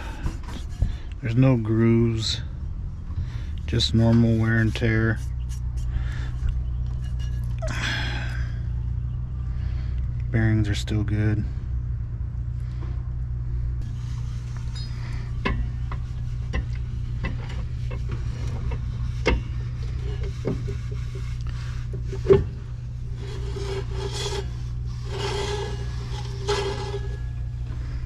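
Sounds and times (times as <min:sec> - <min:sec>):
metal scraping and rubbing: 0:03.7 - 0:07.6, 0:13.8 - 0:28.0.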